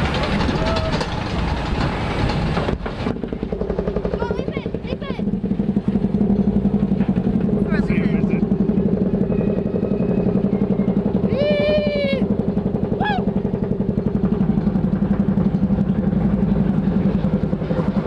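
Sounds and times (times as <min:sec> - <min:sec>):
ride boat rattling and rumbling: 0:00.0 - 0:18.0
rider crying out: 0:11.2 - 0:13.4.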